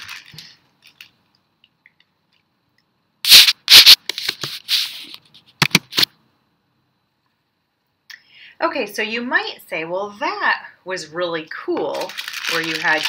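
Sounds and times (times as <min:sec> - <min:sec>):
paper rustling and crinkling: 0:00.0 - 0:01.1, 0:11.9 - 0:13.0.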